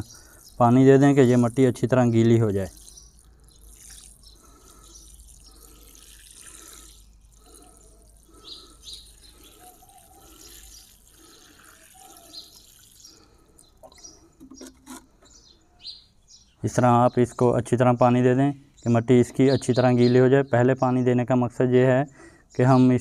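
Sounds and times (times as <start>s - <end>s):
water sprinkling onto soil: 0.0s - 13.8s.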